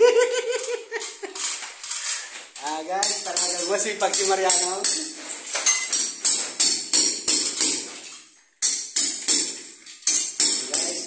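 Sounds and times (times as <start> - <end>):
music with jingling percussion: 5.6 - 6.1.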